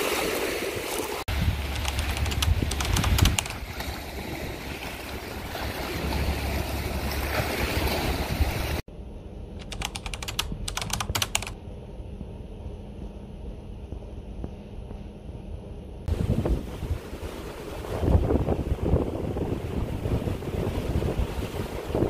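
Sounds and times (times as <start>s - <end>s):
waves on rocky shore: 0.0s - 8.8s, 16.1s - 22.0s
ferry engine hum: 1.3s - 17.6s
typewriter clicks: 1.7s - 3.6s, 9.6s - 11.6s.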